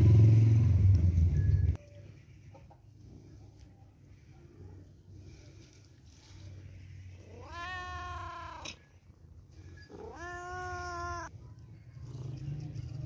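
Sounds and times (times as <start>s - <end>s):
cat meowing: 7.2s - 8.9s, 9.9s - 11.3s.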